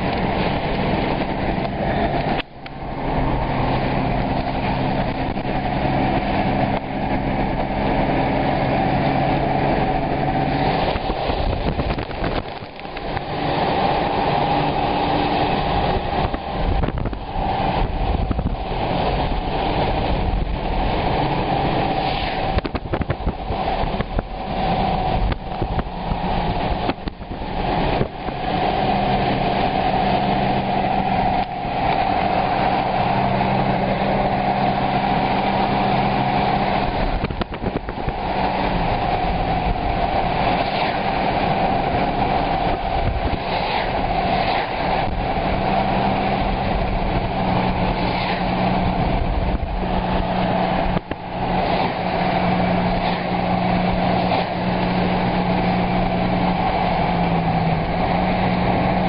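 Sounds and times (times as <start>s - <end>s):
rushing noise: 0.0s - 59.0s
vehicle engine running: 0.0s - 59.0s.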